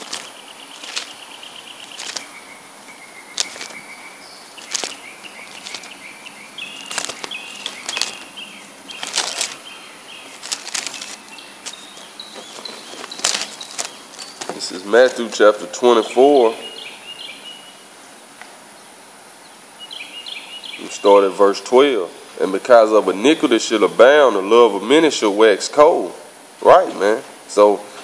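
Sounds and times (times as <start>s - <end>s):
pages rustling: 0.0s - 2.4s, 3.3s - 3.9s, 4.6s - 15.4s
thin high chirping tones: 0.0s - 14.9s.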